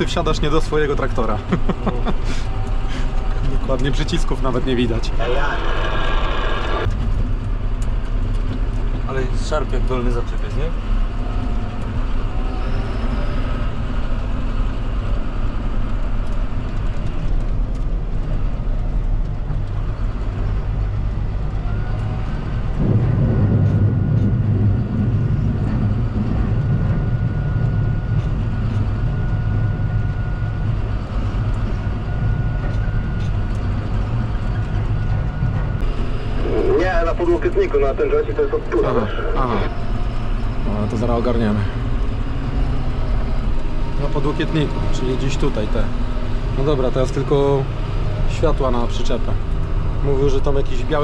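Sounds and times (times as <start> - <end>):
tractor diesel engine running: 0.0 - 51.0
thin high whine: 5.2 - 6.9.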